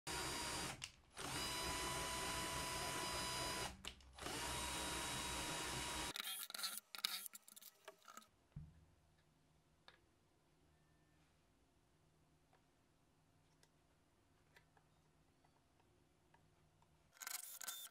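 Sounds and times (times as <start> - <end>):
power drill whining: 0.1 - 6.4, 17.3 - 17.9.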